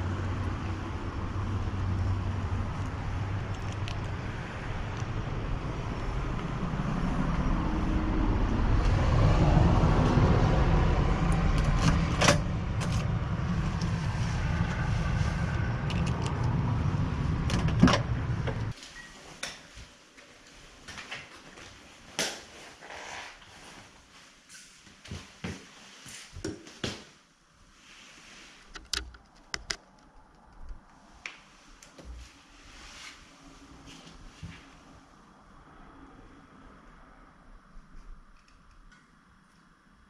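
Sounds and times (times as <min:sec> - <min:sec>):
low outdoor rumble: 0:00.0 - 0:18.8
door shutting: 0:17.4 - 0:18.7.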